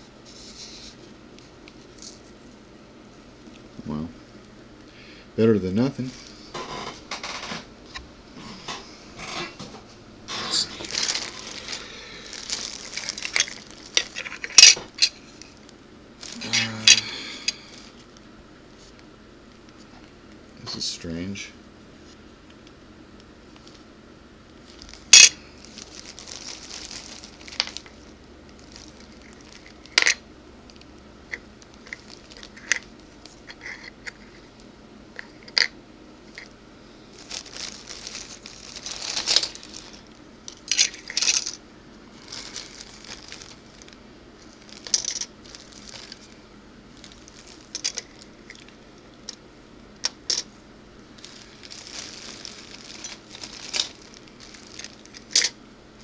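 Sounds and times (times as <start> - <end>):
soft rustling: 40.9 - 48.7, 51.2 - 55.4.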